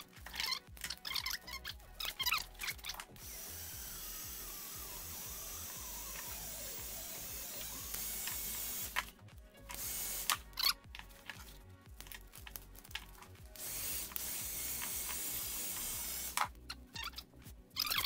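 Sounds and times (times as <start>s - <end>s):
heat gun hissing: 2.1s - 10.8s, 13.5s - 16.8s.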